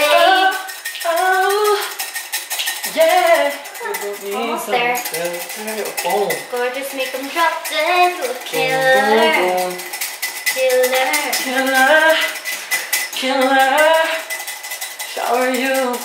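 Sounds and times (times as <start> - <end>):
woman singing a song: 0.0 - 2.0, 2.8 - 5.0, 6.5 - 9.8, 10.5 - 12.4, 13.2 - 14.3, 15.1 - 16.0
cutlery and dishes clinking: 0.0 - 16.0.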